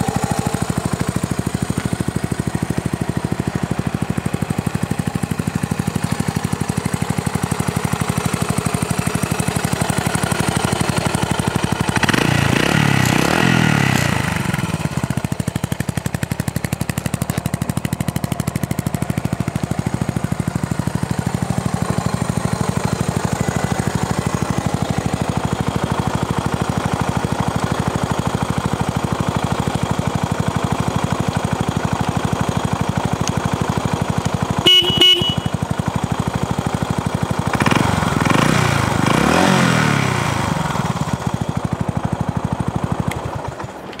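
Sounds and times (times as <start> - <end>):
motorcycle engine idling and revving: 0.0 - 44.0
motorcycle horn toot: 34.6 - 35.8.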